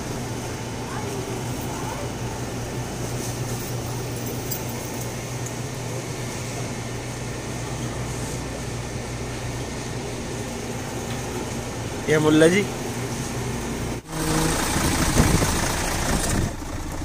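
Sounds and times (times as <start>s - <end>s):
cooling equipment hum and hiss: 0.0s - 17.0s.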